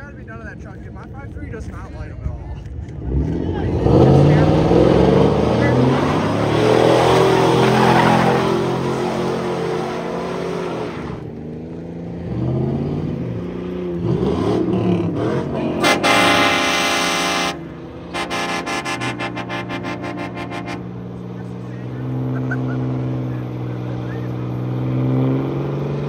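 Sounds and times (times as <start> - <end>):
car engines revving: 0.0 - 26.0
short pulsing horn toots: 15.5 - 20.9
loud horn blast: 15.5 - 21.0.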